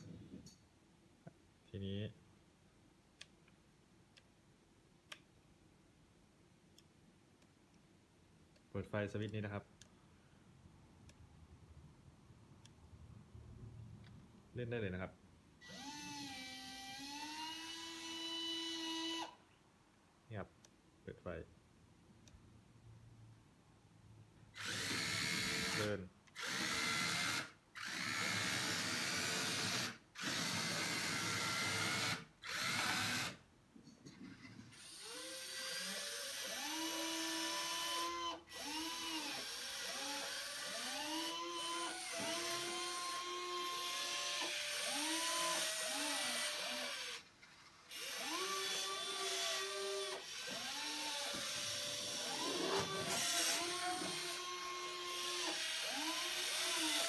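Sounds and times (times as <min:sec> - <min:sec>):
servos whining: 0:34.3 - 0:57.0.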